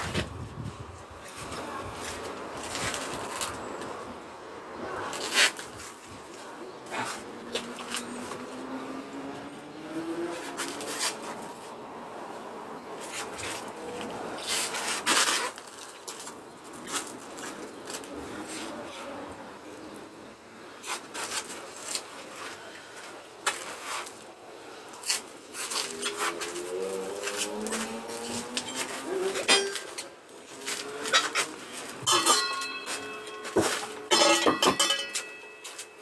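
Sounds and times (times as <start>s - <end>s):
concrete blocks scraping and knocking: 25.6s - 36.0s.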